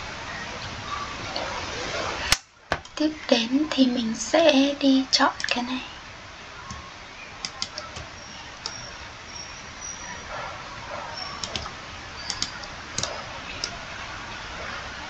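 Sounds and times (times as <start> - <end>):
steady low hiss: 0.0 - 15.0
mouse and keyboard clicks: 11.4 - 11.7, 12.3 - 13.8.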